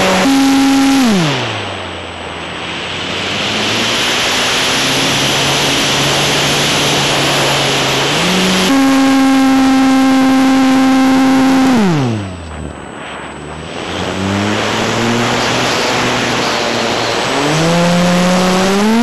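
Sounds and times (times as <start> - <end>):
model plane electric motor whine: 0.0 - 1.5, 7.1 - 12.6, 14.1 - 19.0.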